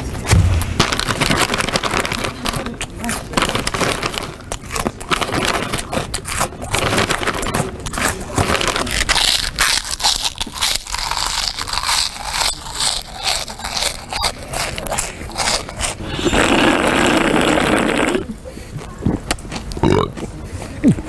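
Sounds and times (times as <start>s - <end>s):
dense continuous noise: 0.0s - 14.5s
plastic snack bag crinkling: 0.4s - 16.0s
crunching and chewing snacks: 0.9s - 20.3s.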